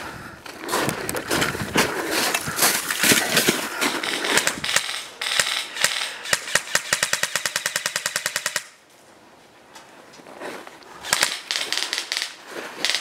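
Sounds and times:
crunching and rustling of snow: 0.4 - 4.3
airsoft gun firing: 4.0 - 8.8, 11.1 - 13.0.

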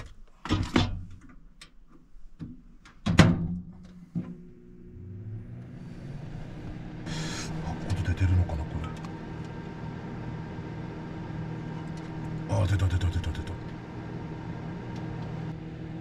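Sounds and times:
low hum: 4.1 - 16.0
hiss: 7.1 - 7.6.

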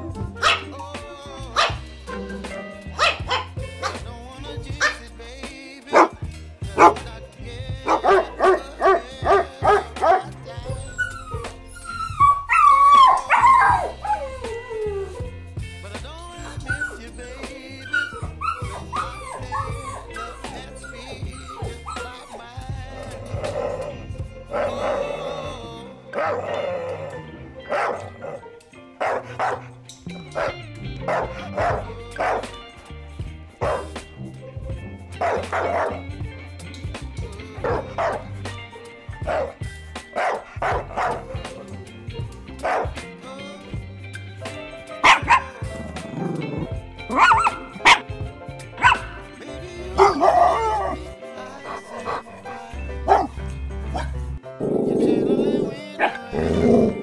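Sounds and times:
background music: 0.0 - 57.0
dog barking: 0.4 - 0.7, 1.6 - 4.0, 5.9 - 6.2, 6.8 - 7.0, 7.8 - 14.3, 17.8 - 22.4, 23.0 - 25.4, 26.1 - 28.4, 29.0 - 32.6, 33.6 - 33.9, 35.2 - 36.0, 37.6 - 38.3, 39.2 - 39.6, 40.2 - 41.7, 42.6 - 43.0, 45.0 - 45.6, 47.1 - 48.1, 48.8 - 49.2, 50.0 - 51.0, 51.6 - 52.5, 53.1 - 54.2
dog barking sharply: 0.4 - 0.7, 3.0 - 4.0, 5.9 - 6.2, 7.9 - 10.3, 27.7 - 28.4, 29.0 - 29.7, 30.4 - 32.5, 33.6 - 33.9, 35.2 - 36.0, 37.6 - 38.2, 40.2 - 41.2, 42.6 - 43.0, 45.0 - 45.5, 47.1 - 48.0, 48.8 - 49.2, 50.0 - 51.0, 51.6 - 52.4, 53.1 - 53.3.

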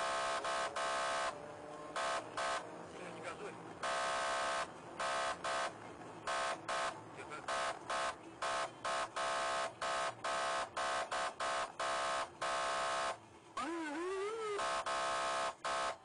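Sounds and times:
police siren short blasts: 6.3 - 16.0.

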